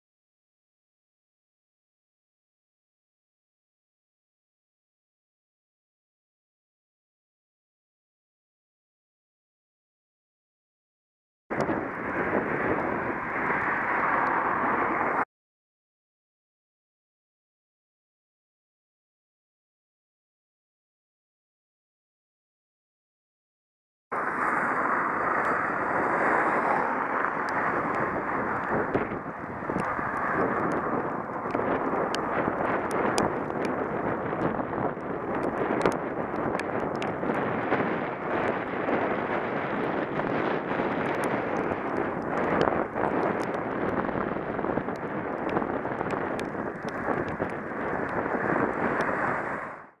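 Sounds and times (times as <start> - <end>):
wind buffeting microphone: 11.5 - 15.2, 24.2 - 49.9.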